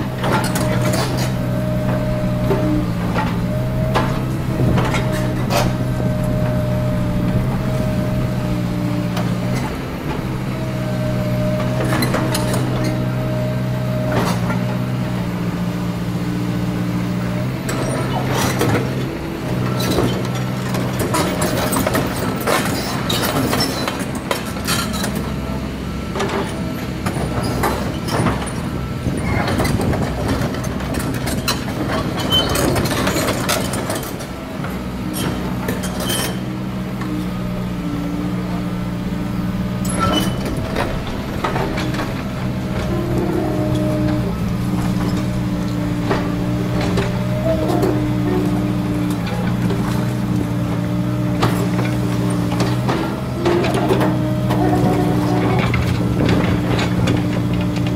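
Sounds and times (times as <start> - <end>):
steel tracks clanking and squeaking: 0.0 - 15.7, 16.6 - 57.9
excavator diesel engine running: 0.0 - 57.9
steady whine: 0.6 - 13.6, 37.0 - 50.5.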